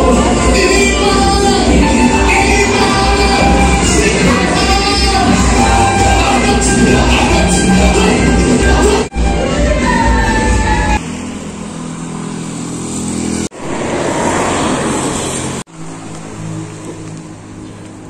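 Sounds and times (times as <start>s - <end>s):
loud rushing noise: 0.0s - 17.6s
low engine hum: 9.6s - 18.0s.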